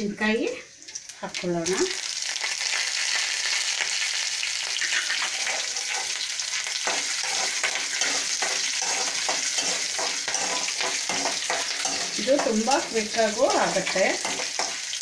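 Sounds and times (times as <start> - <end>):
food sizzling in hot oil: 0.0 - 15.0
metal ladle scraping pan: 4.8 - 15.0.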